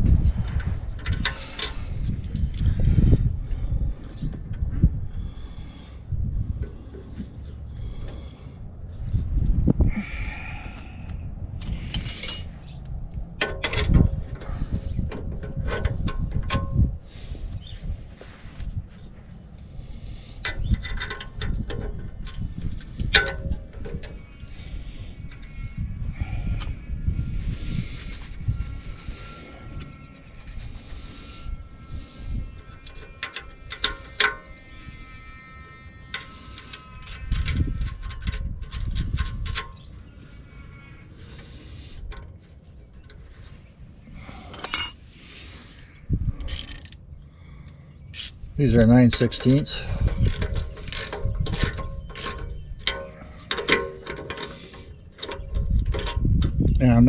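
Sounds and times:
low rumbling handling noise: 0:00.0 - 0:34.5, 0:37.2 - 0:57.0
metal bolts clinking on metal: 0:11.6 - 0:12.6, 0:44.5 - 0:45.0, 0:46.4 - 0:47.0, 0:48.1 - 0:56.9
socket ratchet clicking: 0:46.5 - 0:47.0, 0:48.1 - 0:48.4, 0:49.2 - 0:54.6.

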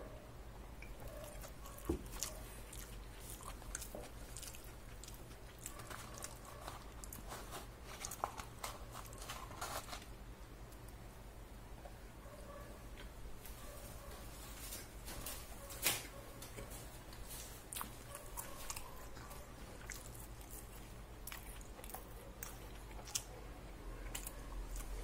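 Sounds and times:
paper rustling: 0:05.9 - 0:10.1.

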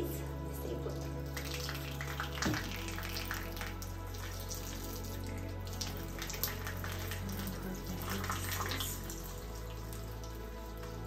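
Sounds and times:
water splashing and sloshing: 0:00.0 - 0:11.0
tap water running into sink: 0:00.7 - 0:11.0.

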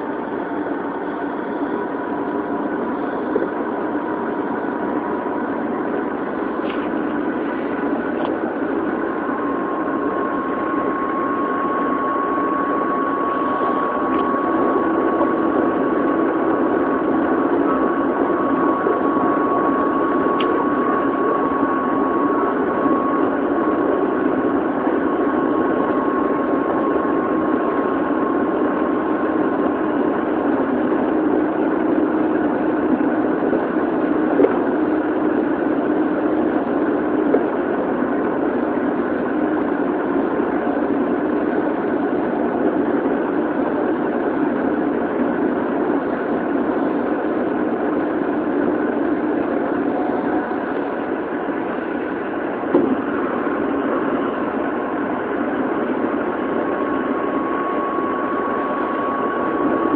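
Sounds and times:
train motor whine: 0:00.0 - 0:59.9.

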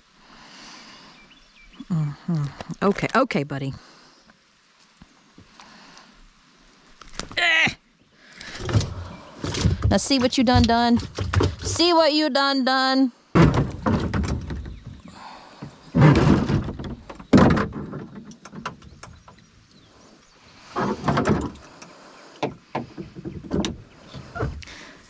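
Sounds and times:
knocks and scrapes on kayak hull: 0:08.5 - 0:11.9, 0:13.4 - 0:19.4, 0:20.6 - 0:24.9.

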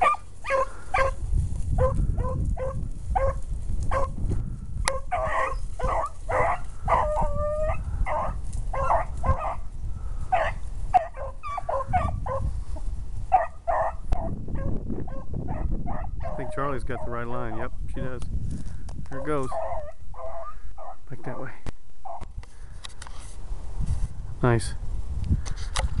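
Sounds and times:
beagles baying: 0:00.0 - 0:04.2, 0:04.8 - 0:12.6, 0:13.2 - 0:17.7, 0:19.2 - 0:21.4, 0:22.0 - 0:22.3.

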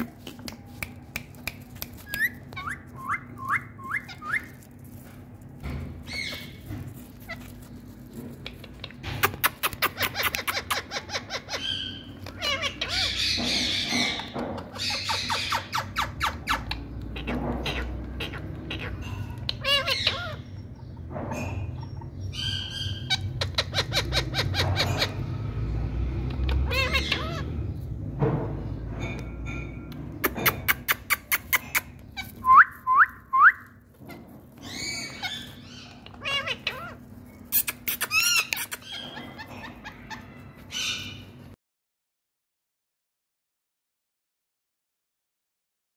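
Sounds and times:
parakeets chattering: 0:01.6 - 0:28.2, 0:28.9 - 0:32.5, 0:33.7 - 0:41.5
parakeet screeches: 0:09.2 - 0:20.6, 0:26.4 - 0:27.7, 0:34.1 - 0:41.3.

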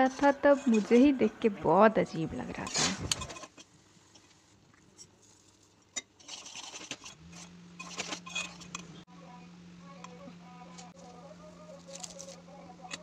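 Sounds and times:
spoon scraping steel pot: 0:00.0 - 0:04.3, 0:05.0 - 0:09.0
low steady hum: 0:00.0 - 0:13.0.

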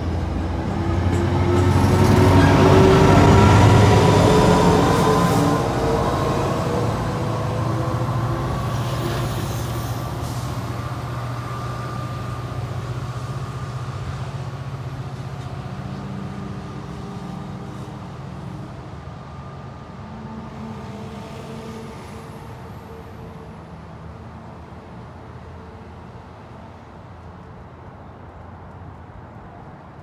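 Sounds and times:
diesel locomotive engine drone: 0:00.0 - 0:30.0.

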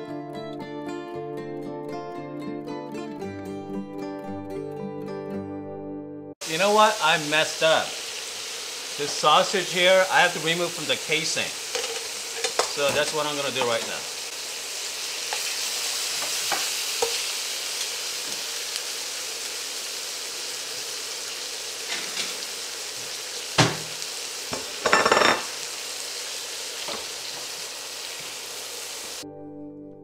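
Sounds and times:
acoustic guitar music: 0:00.0 - 0:06.3
food sizzling in a skillet: 0:06.4 - 0:29.2
metal tongs clinking on pan: 0:11.7 - 0:14.0.

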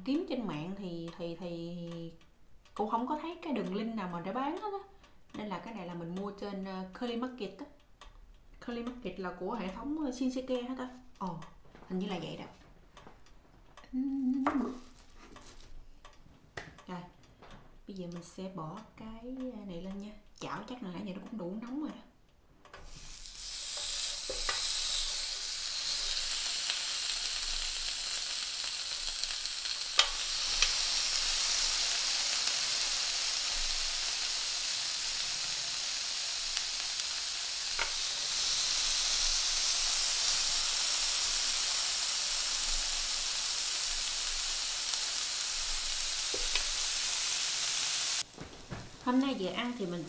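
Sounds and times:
meat sizzling on a grill pan: 0:22.9 - 0:49.5
tongs clicking against pan: 0:25.9 - 0:34.3, 0:36.5 - 0:38.6, 0:44.0 - 0:47.2.

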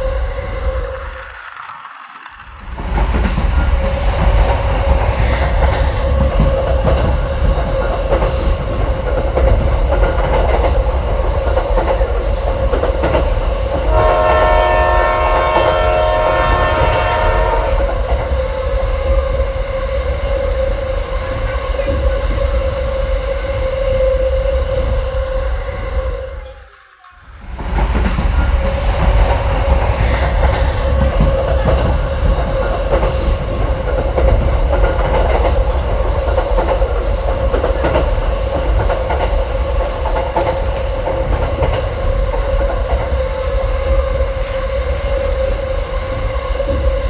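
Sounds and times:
toy train motor whine: 0:00.0 - 0:03.0
clicking rattle: 0:00.2 - 0:03.4
toy train horn: 0:13.9 - 0:17.9.

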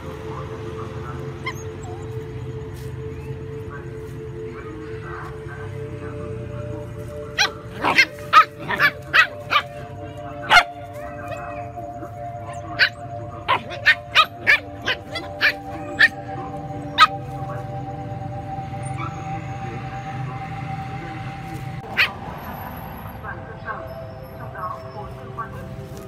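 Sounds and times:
background music: 0:00.0 - 0:26.0
dogs yapping: 0:01.3 - 0:02.2, 0:07.3 - 0:17.2, 0:21.8 - 0:22.2.

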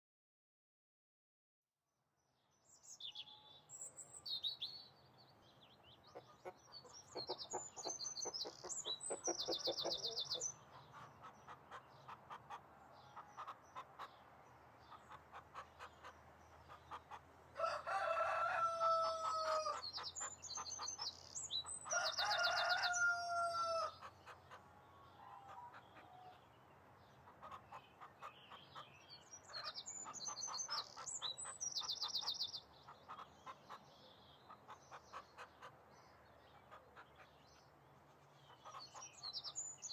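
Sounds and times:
small birds chirping: 0:02.4 - 0:39.9
hens clucking: 0:06.2 - 0:14.2
rooster crowing: 0:17.6 - 0:19.8, 0:21.9 - 0:24.0.

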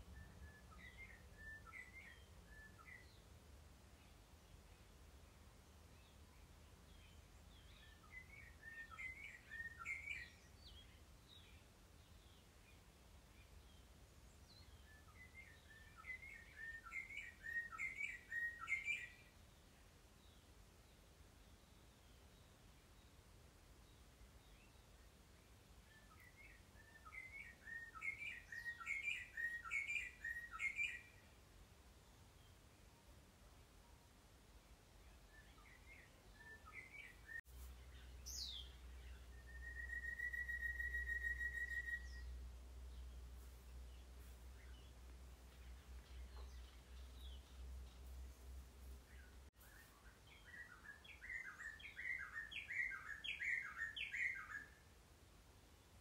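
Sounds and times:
songbird whistling: 0:00.1 - 0:03.2, 0:07.8 - 0:10.4, 0:14.8 - 0:19.2, 0:25.9 - 0:31.2, 0:39.3 - 0:42.3, 0:49.7 - 0:54.8.

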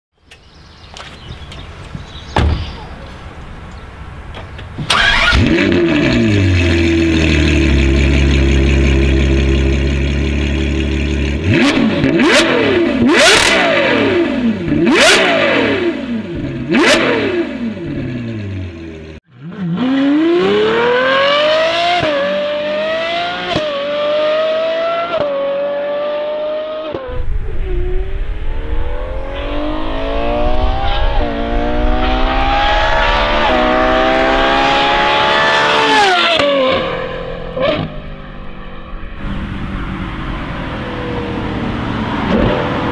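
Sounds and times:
sports car engine revving: 0:04.8 - 0:42.9
car accelerating through upshifts: 0:11.4 - 0:18.3, 0:19.4 - 0:38.2, 0:39.2 - 0:42.9.

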